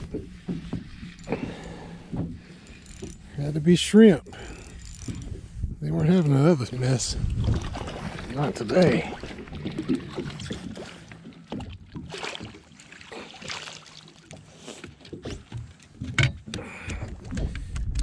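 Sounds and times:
water sloshing: 0:00.0 - 0:17.5
fish splashing: 0:07.4 - 0:14.8.

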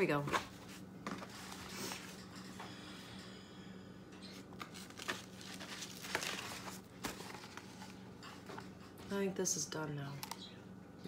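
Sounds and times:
faint room hum: 0:00.0 - 0:11.0
paper journal rustling: 0:04.5 - 0:08.6.

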